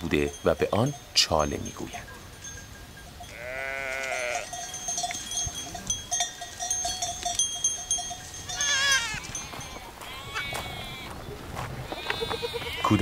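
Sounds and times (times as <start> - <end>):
goat kids bleating: 3.3 - 4.6, 8.5 - 11.2, 11.8 - 13.0.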